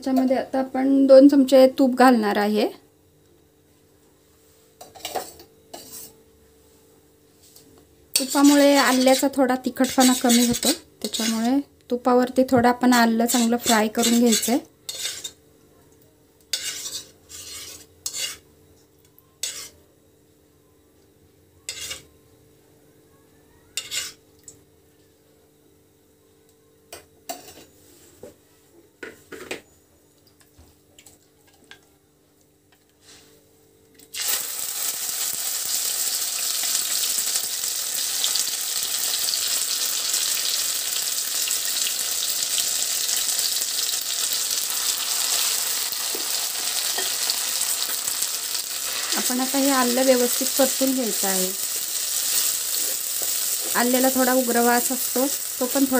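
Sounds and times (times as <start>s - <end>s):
steel spoon clinking and scraping: 8.2s - 11.4s, 13.7s - 15.4s, 16.5s - 18.4s, 21.7s - 22.0s
paste sizzling in hot ghee: 8.2s - 11.5s, 13.2s - 15.4s, 16.5s - 18.4s, 19.4s - 19.8s, 34.1s - 55.9s.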